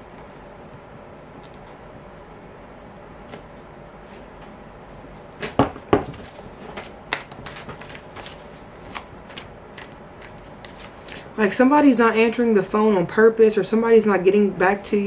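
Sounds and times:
low room hum: 0.0 - 15.0
cards flicking and rustling: 5.4 - 11.3.

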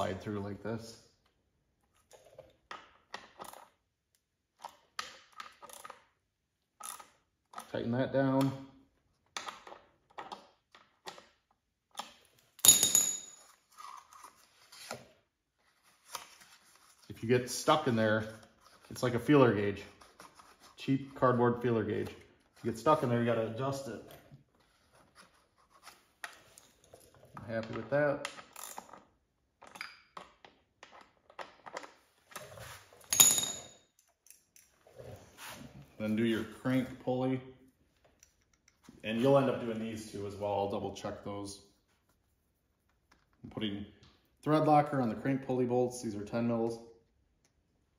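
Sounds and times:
sharp metallic clink: 12.6 - 13.4, 33.1 - 33.8
metal hand tool clinking: 33.1 - 34.7.

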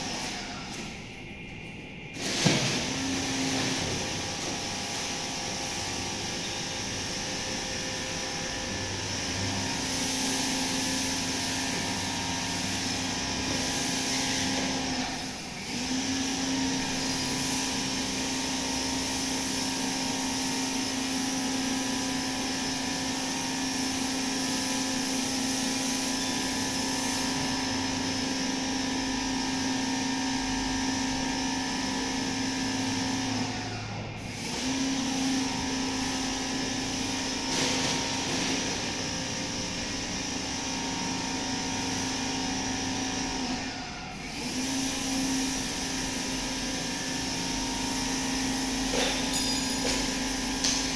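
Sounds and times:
mechanical drone with low hum: 0.0 - 50.9.

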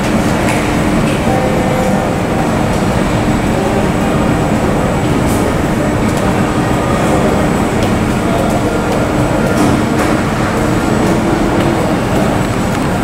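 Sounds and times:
airport ramp rumble and hiss: 0.0 - 13.0.

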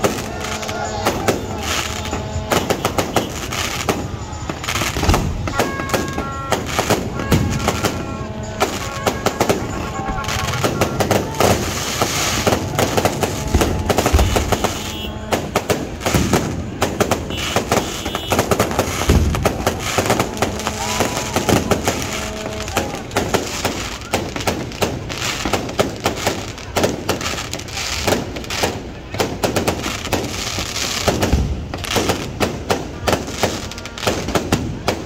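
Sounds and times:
fireworks cracking and popping: 0.0 - 35.0
deep firework thuds: 1.1 - 9.6, 10.2 - 20.7.

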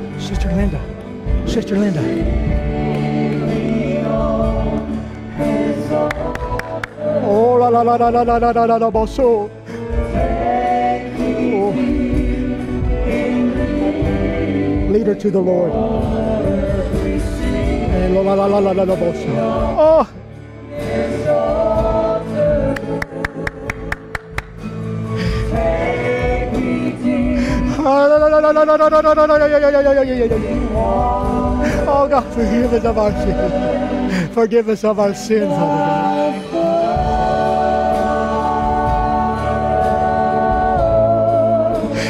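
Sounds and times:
gospel singing: 0.0 - 42.0
instrumental accompaniment: 9.5 - 28.3.

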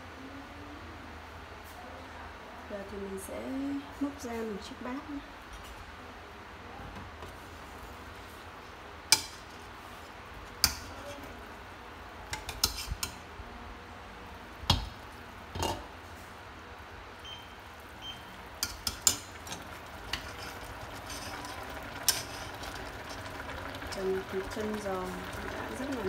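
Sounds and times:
utensils clinking on metal pot: 18.6 - 23.2.

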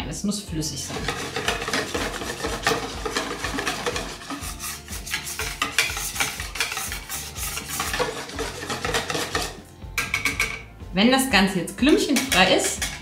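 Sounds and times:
whisk beating batter in a bowl: 0.8 - 9.6.

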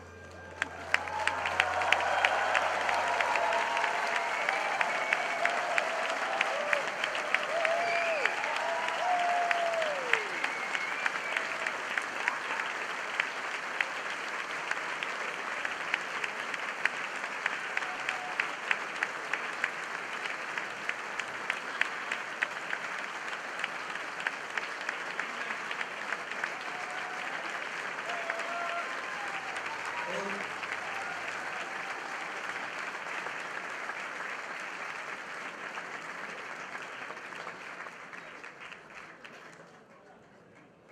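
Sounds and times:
audience applauding: 0.0 - 40.9.

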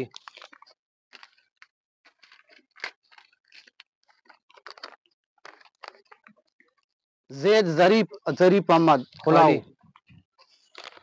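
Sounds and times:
paper crinkling and rustling: 0.0 - 6.9, 9.9 - 11.0.

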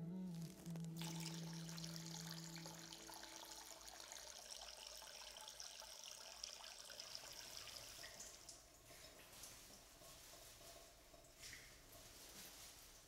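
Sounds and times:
low held tone: 0.0 - 3.8
tap water running into basin: 1.0 - 12.2.

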